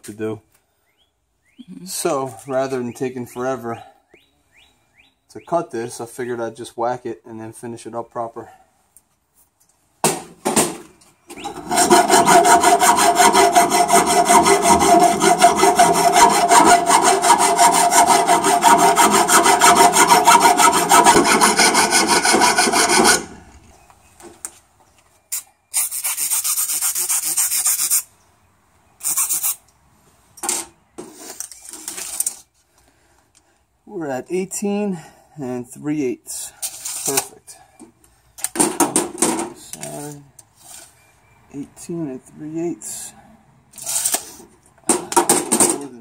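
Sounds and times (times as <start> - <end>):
file rasping on steel: 11.4 - 23.4.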